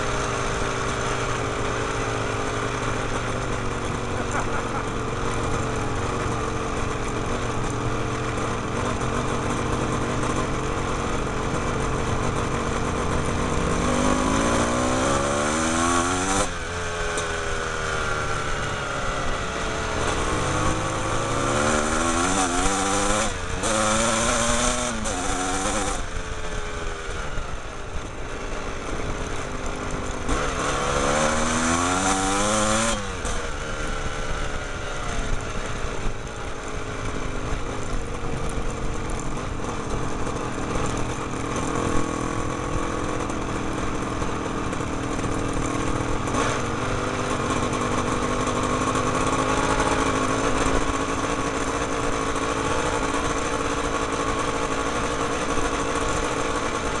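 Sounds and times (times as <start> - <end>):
motorcycle engines revving: 0.0 - 57.0.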